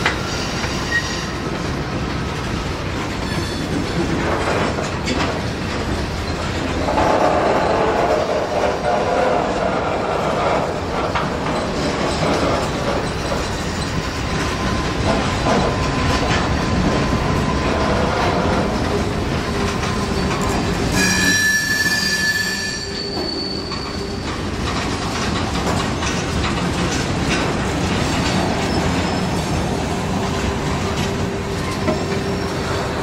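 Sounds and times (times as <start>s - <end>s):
high wheel squeal: 0.0s - 1.5s, 19.5s - 24.6s, 31.5s - 33.0s
steel wheels rolling on rail: 0.0s - 33.0s.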